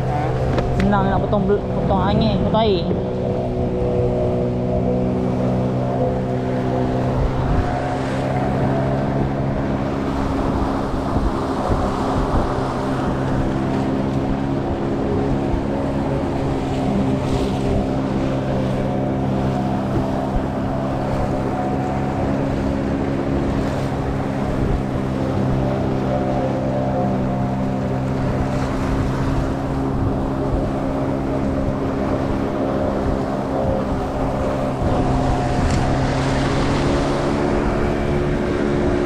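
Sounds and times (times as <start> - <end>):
outboard engine running: 0.0 - 39.0
water slapping hull: 0.0 - 39.0
wind buffeting microphone: 0.0 - 39.0.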